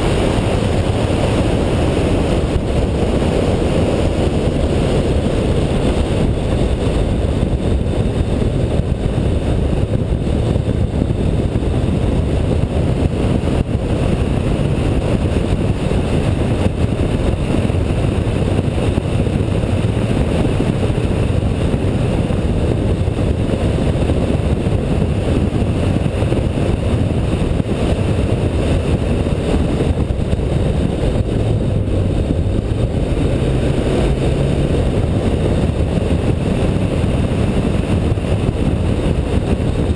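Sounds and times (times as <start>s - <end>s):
car engine at speed: 0.0s - 39.9s
wind and road noise: 0.0s - 39.9s.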